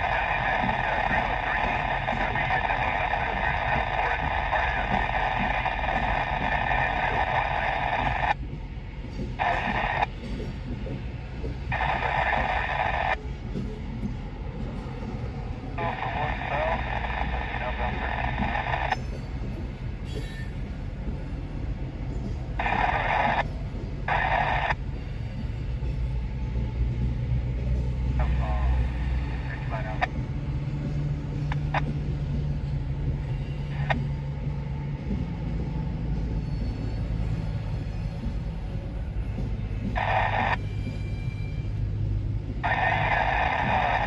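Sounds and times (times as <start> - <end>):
radio static hiss: 0.0 - 8.4, 9.3 - 13.2, 15.5 - 19.6, 22.2 - 24.9, 27.6 - 32.3, 33.0 - 34.2, 39.7 - 40.6, 42.5 - 44.0
scratchy noise bursts: 0.0 - 8.4, 9.4 - 10.1, 11.7 - 13.2, 15.7 - 19.0, 22.6 - 24.8, 28.2 - 30.1, 39.9 - 40.6, 42.6 - 44.0
train cars rolling past: 0.0 - 44.0.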